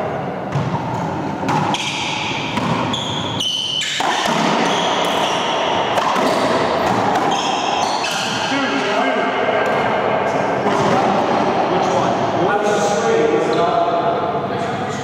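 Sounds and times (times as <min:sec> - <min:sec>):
echoing racquetball impacts: 0:00.0 - 0:14.5
shoe squeaks: 0:02.8 - 0:05.6, 0:07.3 - 0:08.6.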